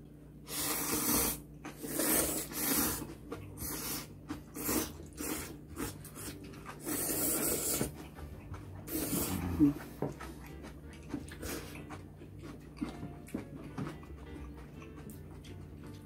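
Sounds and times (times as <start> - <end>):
people slurping noodles: 0.5 - 8.0, 8.9 - 10.0.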